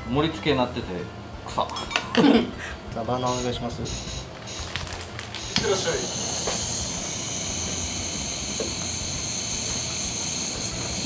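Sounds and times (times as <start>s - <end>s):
gas burner torch hissing: 5.4s - 11.0s.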